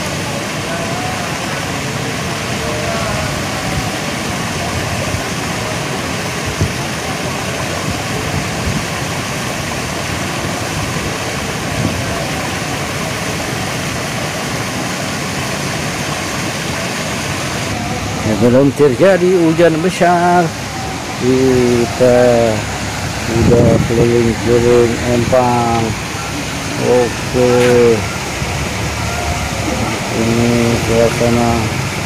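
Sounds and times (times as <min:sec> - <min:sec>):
faint distant voices: 0:00.0 - 0:09.1, 0:17.6 - 0:32.0
strong wind on microphone: 0:07.7 - 0:12.5, 0:20.6 - 0:32.0.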